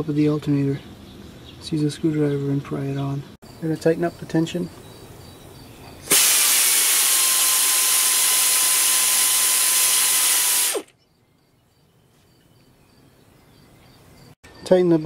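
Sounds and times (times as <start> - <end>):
pneumatic air ratchet running: 6.1 - 10.9.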